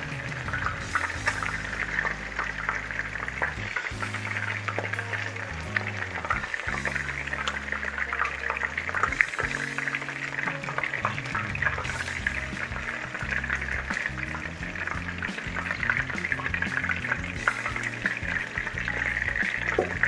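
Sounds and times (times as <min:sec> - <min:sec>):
background music with bass: 0:00.0 - 0:20.0
chicken frying in oil: 0:00.0 - 0:20.0.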